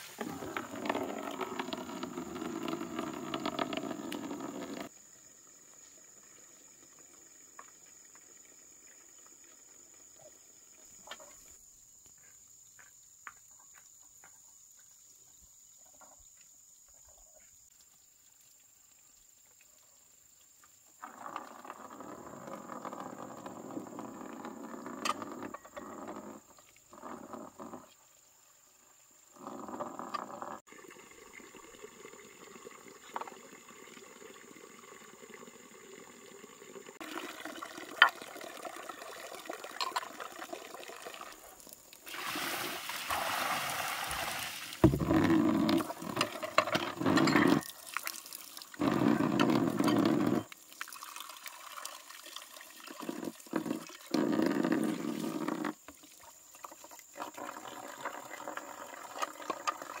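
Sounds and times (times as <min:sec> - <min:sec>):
water pouring and splashing: 0:00.0 - 0:05.0, 0:30.6 - 1:00.0.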